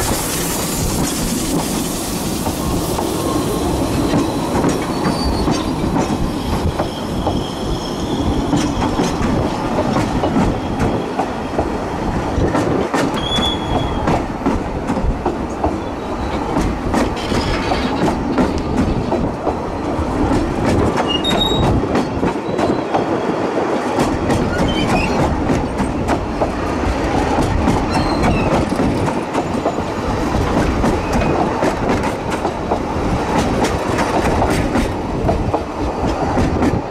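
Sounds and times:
train coaches rumbling past: 0:00.0 - 0:36.9
high wheel squeals: 0:04.3 - 0:05.8, 0:06.8 - 0:08.5, 0:21.0 - 0:21.7, 0:27.9 - 0:28.6.

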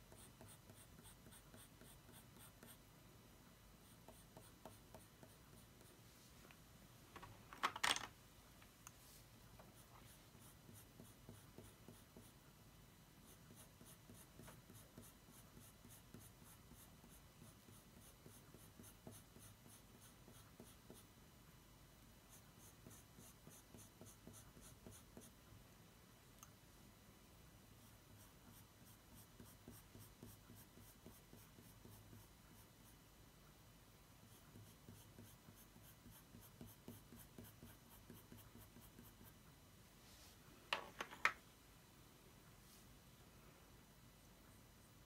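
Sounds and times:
pencil shading on paper: 0:00.0 - 0:02.8, 0:03.8 - 0:05.9, 0:09.7 - 0:12.4, 0:13.2 - 0:21.1, 0:22.3 - 0:25.4, 0:27.8 - 0:33.0, 0:34.2 - 0:39.4.

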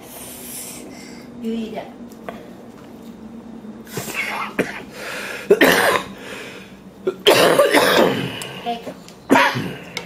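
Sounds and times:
person coughing raspily: 0:04.2 - 0:04.9, 0:05.5 - 0:06.2, 0:07.2 - 0:08.4, 0:09.3 - 0:09.9.

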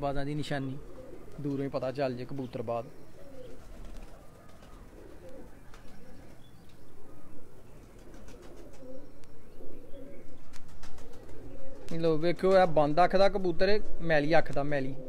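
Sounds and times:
pigeons cooing: 0:00.0 - 0:12.7, 0:14.6 - 0:15.0.

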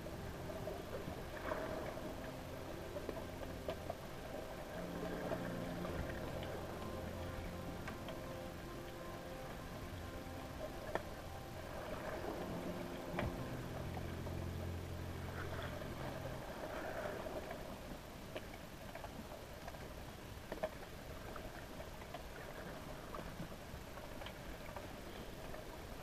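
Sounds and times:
faint water wash: 0:00.0 - 0:26.0
low underwater hum: 0:00.0 - 0:26.0.

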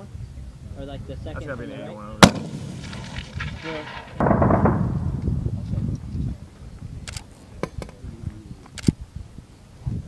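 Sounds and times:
mortar shot boom: 0:02.2 - 0:05.6
sharp clicks: 0:07.0 - 0:08.0, 0:08.6 - 0:09.0.

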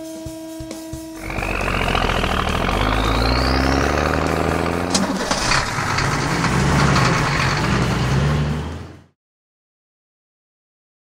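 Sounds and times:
rising whine: 0:01.1 - 0:08.8
truck engine rumbling: 0:01.1 - 0:09.2.

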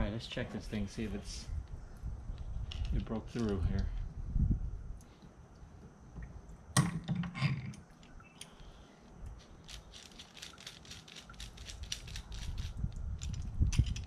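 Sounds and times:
light clicks and rattles: 0:01.6 - 0:04.0, 0:09.2 - 0:14.0.

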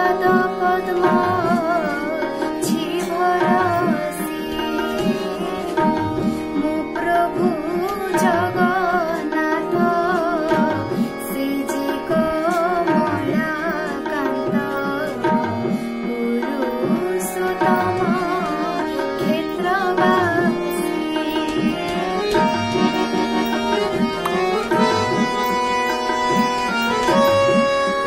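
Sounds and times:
ornamented melody line: 0:00.0 - 0:28.0
steady held notes: 0:00.0 - 0:28.0
tabla rhythm: 0:00.0 - 0:28.0.

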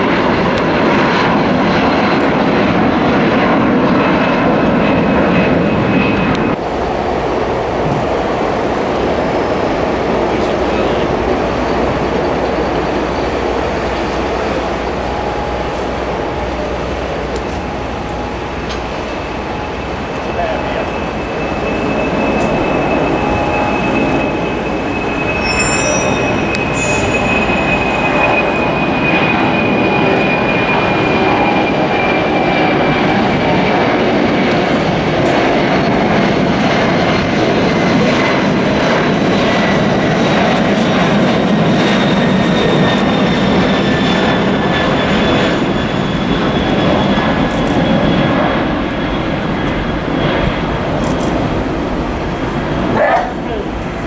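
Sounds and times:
jet engines roaring: 0:00.0 - 0:54.0.

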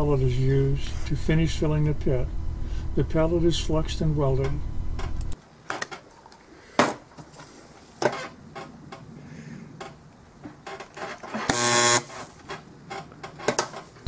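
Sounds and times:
spot welder buzzing: 0:11.4 - 0:12.4.

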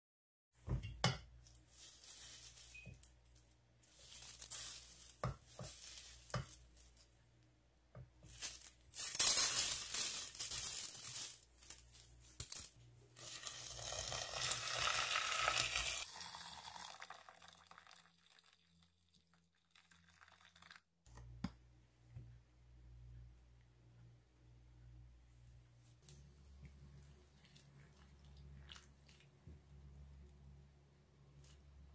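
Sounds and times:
lentils rattling into metal pot: 0:03.9 - 0:06.6, 0:08.3 - 0:17.0
water rushing into pot: 0:13.2 - 0:20.9.

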